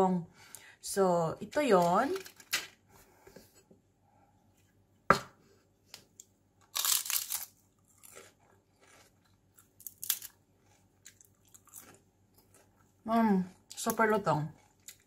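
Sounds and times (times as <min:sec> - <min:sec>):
crispy chicken skin crunching: 0:06.6 - 0:12.8.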